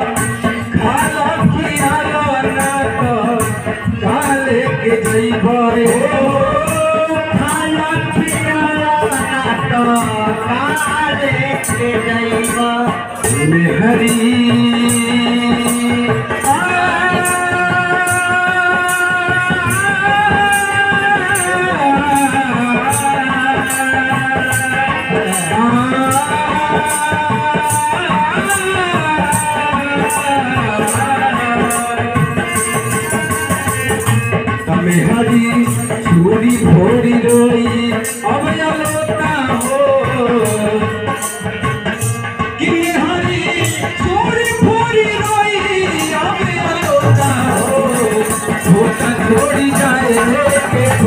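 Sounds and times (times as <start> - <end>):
hand drum: 0.0 - 51.0
harmonium: 0.0 - 51.0
steady rattling beat: 0.0 - 51.0.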